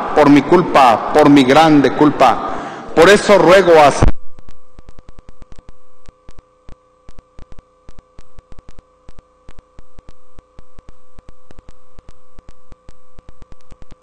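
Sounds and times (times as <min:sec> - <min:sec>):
voice: 0:00.0 - 0:04.1
buzzing tone: 0:04.0 - 0:14.0.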